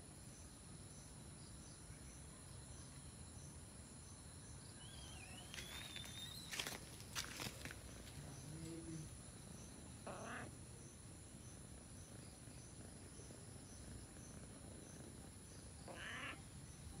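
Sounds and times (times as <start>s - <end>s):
insect chirping trill: 0.0s - 17.0s
rustles: 5.4s - 9.3s.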